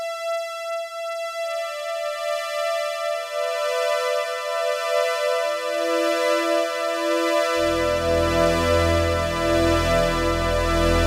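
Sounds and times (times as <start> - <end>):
synthesizer strings holding chord: 6.8 - 11.0.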